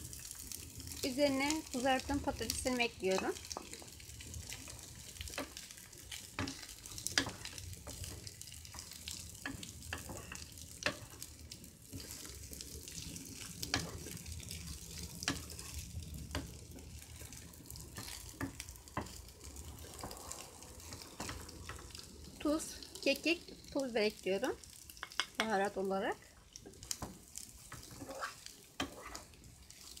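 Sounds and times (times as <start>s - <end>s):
food sizzling in frying pan: 0.0s - 30.0s
wooden spoon scraping pan: 2.6s - 11.2s, 11.8s - 19.2s, 26.7s - 30.0s.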